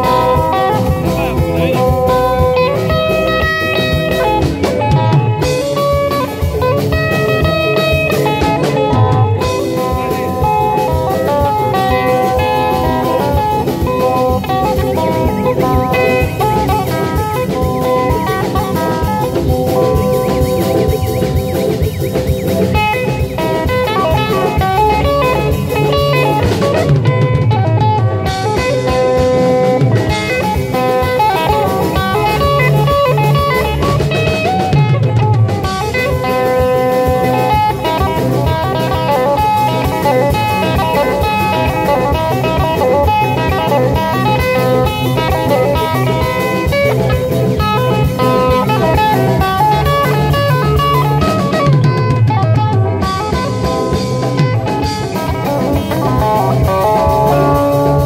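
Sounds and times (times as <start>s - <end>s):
drum kit: 0.0s - 58.0s
electric guitars: 0.0s - 58.0s.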